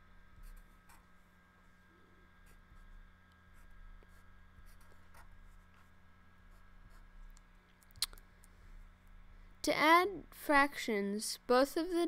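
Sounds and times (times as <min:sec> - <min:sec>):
low electrical hum: 0:00.0 - 0:12.0
marker scratching on paper: 0:00.4 - 0:01.2, 0:02.4 - 0:07.4.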